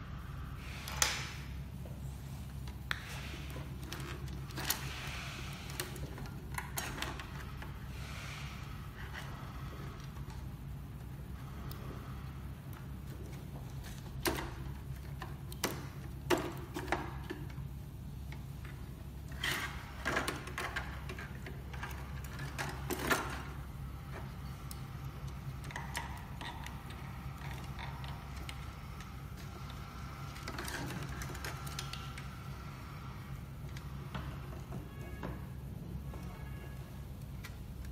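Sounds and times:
steady low hum: 0.0 - 37.9
plastic parts clicking and knocking: 2.6 - 7.9, 9.0 - 32.5.

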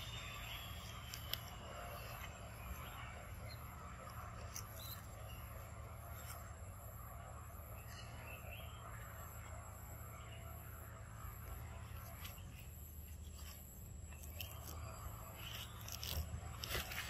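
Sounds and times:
rustles of dry leaf litter: 0.0 - 6.8, 10.9 - 17.0
steady low hum: 0.0 - 17.0.

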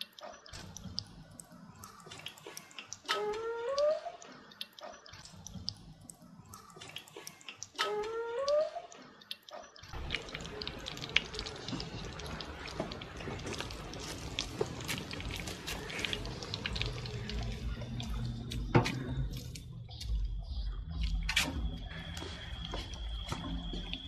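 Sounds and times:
food deep-frying in oil: 9.8 - 24.0.

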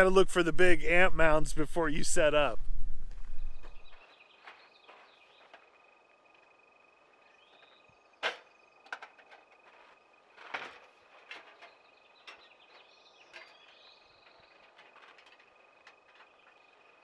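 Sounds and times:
camping gear knocking and clattering: 3.6 - 6.0, 7.4 - 17.0.

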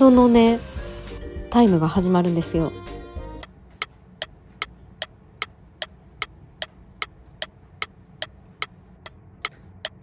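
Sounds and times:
steady low hum: 3.4 - 10.0.

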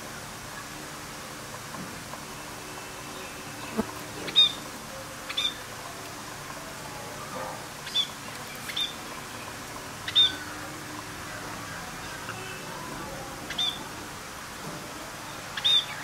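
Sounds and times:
budgerigars chirping: 4.2 - 4.6, 7.8 - 9.0, 10.0 - 10.5, 13.5 - 13.8, 15.6 - 16.0.

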